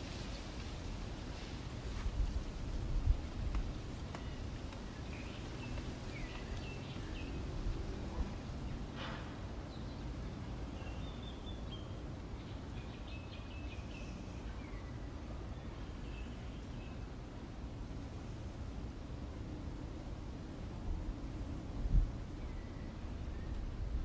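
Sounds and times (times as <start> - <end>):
birds chirping: 3.5 - 9.0, 9.6 - 17.1.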